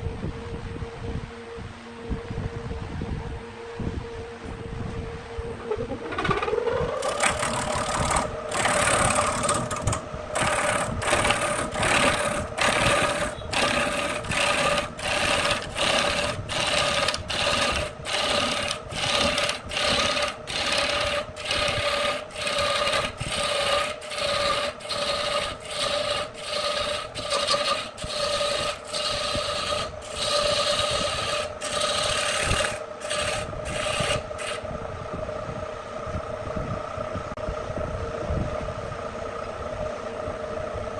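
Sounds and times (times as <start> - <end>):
lathe motor whine: 5.2 - 35.3
lathe tool scraping wood: 6.0 - 34.6.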